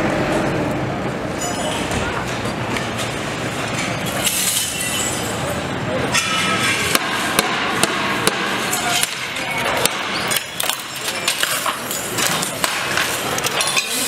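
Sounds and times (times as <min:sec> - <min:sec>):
glass clinking and breaking: 0:01.4 - 0:02.3, 0:03.8 - 0:06.9, 0:08.7 - 0:14.0.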